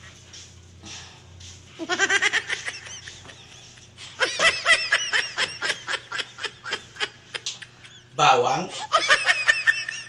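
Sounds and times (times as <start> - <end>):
person laughing: 1.8 - 10.0.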